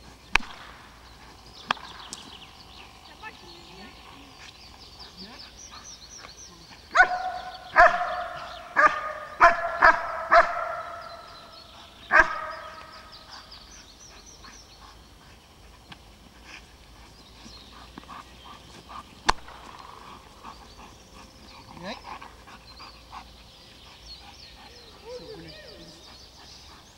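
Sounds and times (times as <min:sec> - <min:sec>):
large dog barking: 0:06.9 - 0:13.6.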